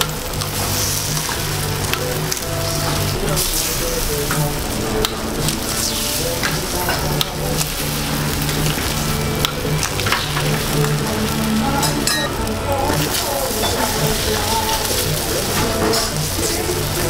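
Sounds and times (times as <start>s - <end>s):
eggs sizzling on griddle: 0.0s - 17.0s.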